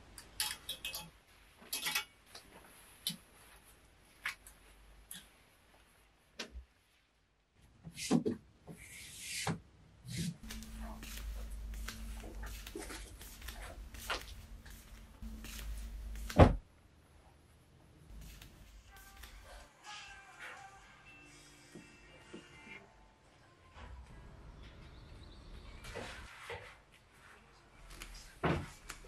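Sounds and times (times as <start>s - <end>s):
clothes rustling: 1.2s - 7.3s, 10.4s - 16.6s, 18.1s - 19.7s
faint steady hum: 10.4s - 19.7s
loud thump: 16.3s - 16.6s.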